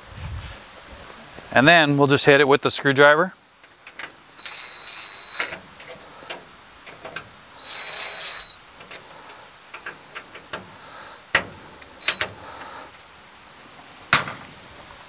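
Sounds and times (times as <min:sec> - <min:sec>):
cordless drill driving a screw: 0:04.4 - 0:05.5, 0:07.6 - 0:08.6, 0:12.0 - 0:12.3.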